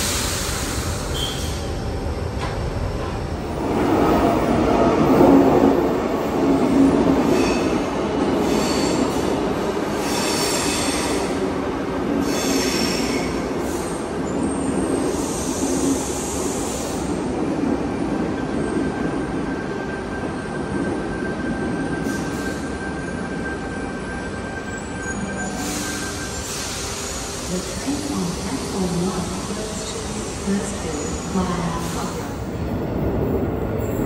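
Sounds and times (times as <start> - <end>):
train rumble: 0.0 - 34.0.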